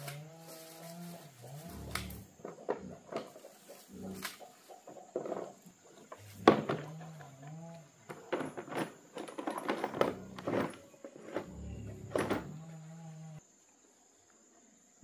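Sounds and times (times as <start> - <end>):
tools and plastic case clattering: 8.0 - 12.6.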